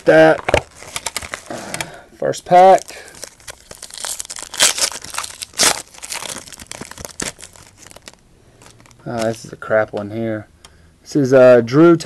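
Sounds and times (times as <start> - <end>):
wrapper crinkling: 0.0 - 1.8, 2.5 - 9.6
wrapper tearing: 0.0 - 1.8, 2.6 - 9.5.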